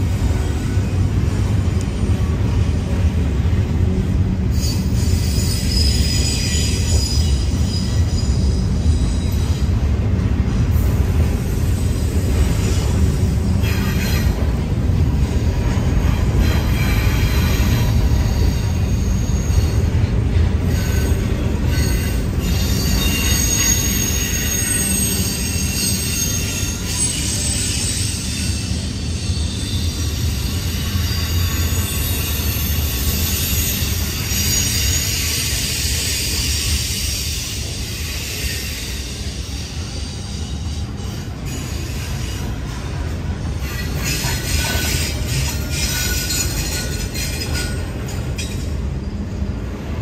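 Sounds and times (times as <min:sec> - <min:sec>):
wheels rumbling on rail: 0:00.0 - 0:50.0
high-pitched wheel squeal: 0:04.5 - 0:09.7, 0:16.4 - 0:20.1, 0:20.7 - 0:42.6.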